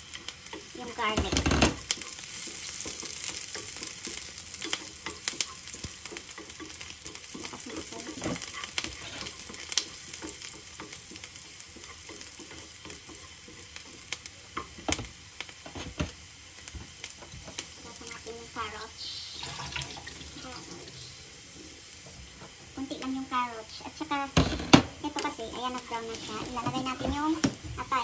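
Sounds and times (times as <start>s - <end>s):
onions sizzling in frying pan: 0.0s - 28.0s
wooden spatula scraping pan: 0.5s - 13.7s, 25.1s - 27.8s.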